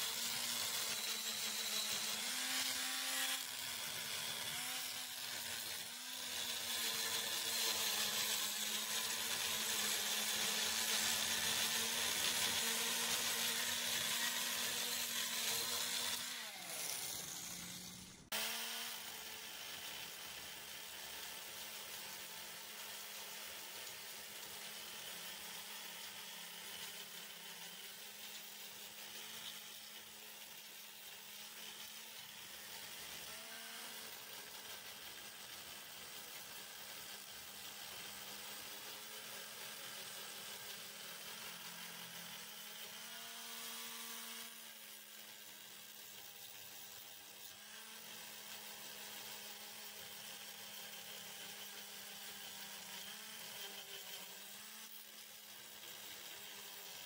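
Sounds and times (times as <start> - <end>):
angle grinder grinding metal: 0.0 - 57.0.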